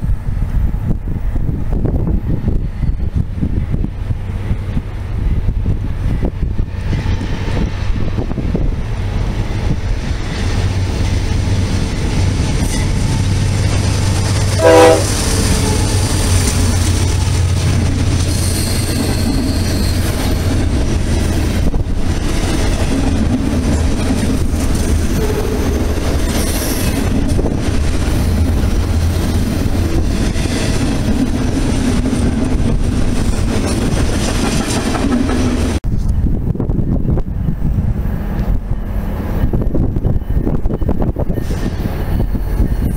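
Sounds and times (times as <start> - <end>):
train horn blast: 14.4 - 16.5
wheel squeal: 18.2 - 20.5.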